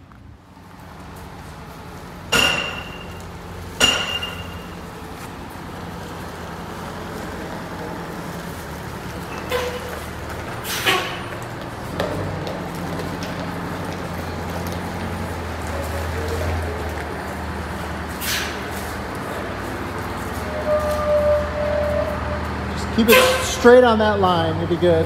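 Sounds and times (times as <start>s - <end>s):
bus diesel engine running: 0.0s - 25.0s
sharp metallic clanks: 2.3s - 3.2s, 3.8s - 4.8s.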